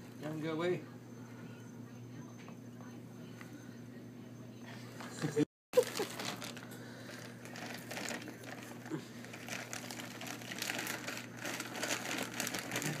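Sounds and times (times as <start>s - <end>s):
rabbit crunching hay: 5.8s - 13.0s.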